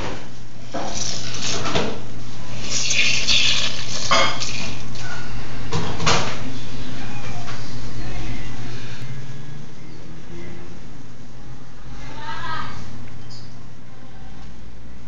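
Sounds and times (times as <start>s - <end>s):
hands mixing meat in metal bowl: 2.6s - 5.2s.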